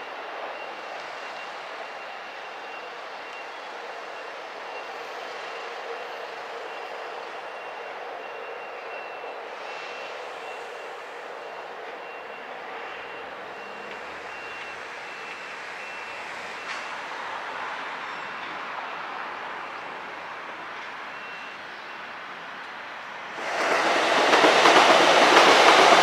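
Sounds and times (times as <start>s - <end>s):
faint high electronic beep: 0.1s - 17.1s.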